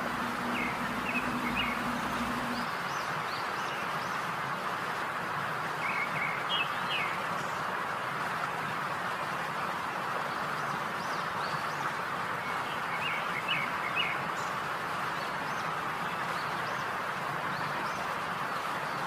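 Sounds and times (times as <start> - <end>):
small birds chirping: 0.0 - 2.7.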